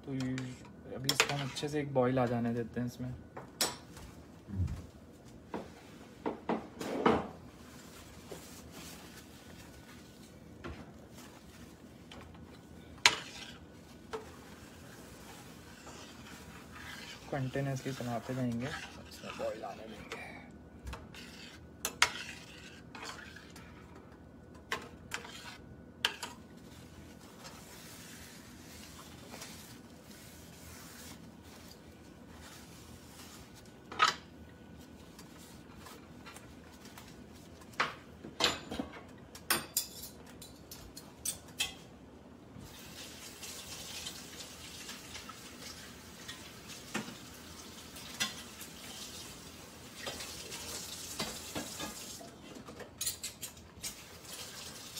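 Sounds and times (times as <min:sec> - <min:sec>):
curry simmering hiss: 0:13.1 - 0:20.5, 0:42.6 - 0:52.4.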